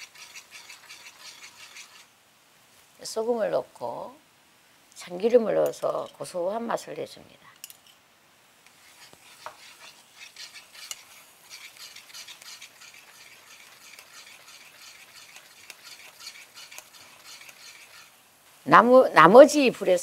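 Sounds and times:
wooden spoon scraping a pan: 0.0 - 2.1, 8.7 - 18.2
sauce bubbling and crackling: 8.7 - 18.6.

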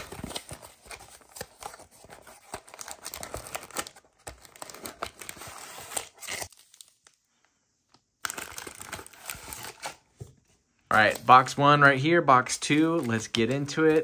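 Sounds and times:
foil packs crinkling: 0.0 - 7.2, 8.2 - 10.0, 12.4 - 14.0.

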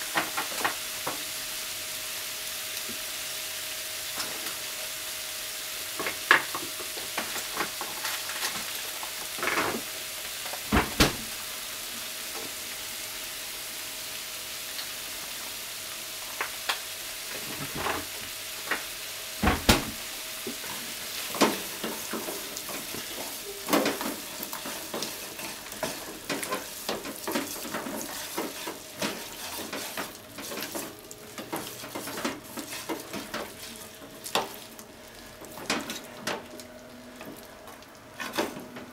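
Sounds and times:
meat sizzling in a frying pan: 0.0 - 38.2
spatula scraping and knocking pan: 19.7 - 34.6.

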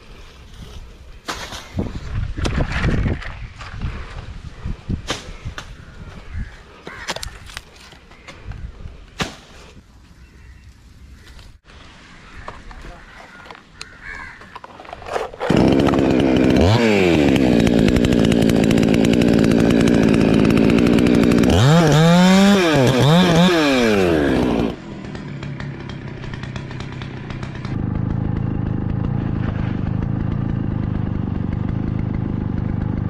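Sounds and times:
chainsaw cutting wood: 14.8 - 33.0.

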